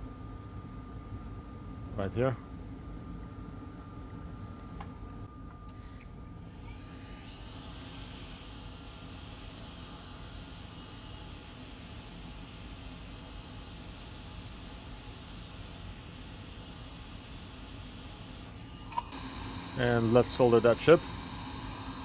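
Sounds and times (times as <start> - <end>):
hot air blower hiss: 6.7 - 22.0.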